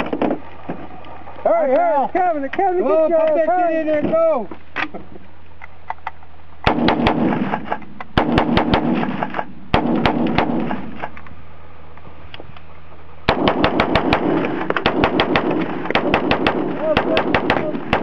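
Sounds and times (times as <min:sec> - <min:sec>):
rifle firing quickly: 0:06.7 - 0:11.0, 0:13.3 - 0:18.0.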